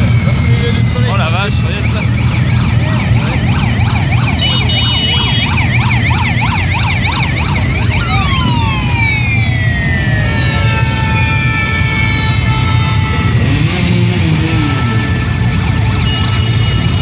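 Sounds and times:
motorcycle engines rumbling: 0.0 - 17.0
siren yelping: 0.0 - 17.0.

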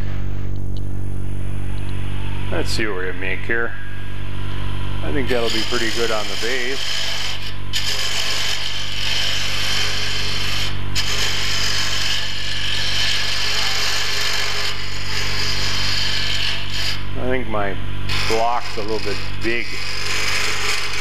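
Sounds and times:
turning tool scraping spinning wood: 5.2 - 17.0, 18.1 - 21.0
lathe motor hum: 5.2 - 17.1.

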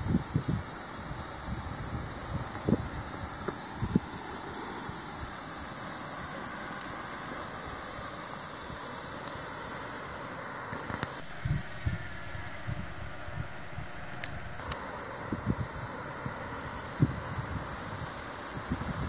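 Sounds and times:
insects shrilling: 0.0 - 19.0
wind thumps on microphone: 11.2 - 16.4.

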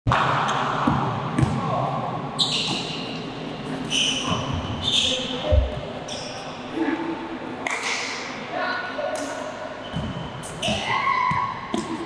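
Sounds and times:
sneakers squeaking on court: 2.4 - 6.7, 9.8 - 12.0.

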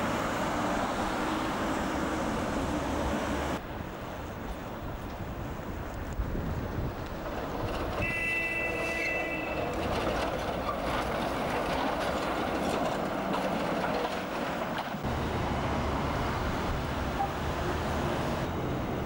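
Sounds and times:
tram rumbling past: 0.0 - 19.0
tram wheels squealing: 7.2 - 15.0.

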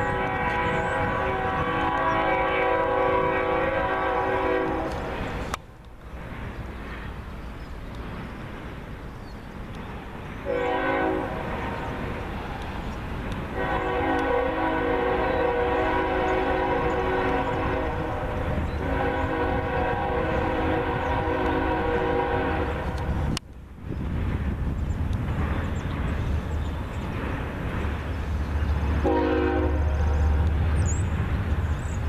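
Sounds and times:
locomotive air horn blasts: 0.0 - 5.1, 10.4 - 11.8, 13.6 - 23.1, 29.0 - 30.1.

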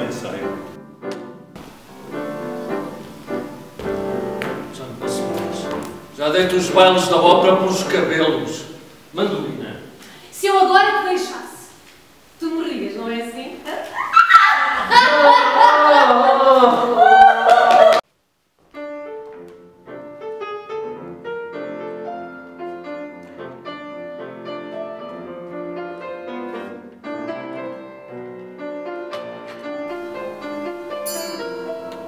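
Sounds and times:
piano music: 0.0 - 9.4, 18.7 - 32.0.

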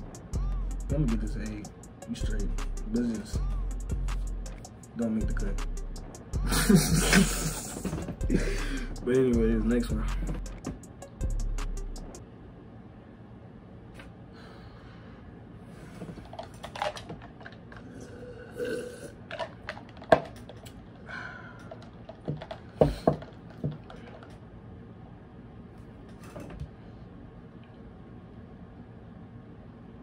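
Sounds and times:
person drinking gulps: 17.6 - 20.1, 21.6 - 24.3.

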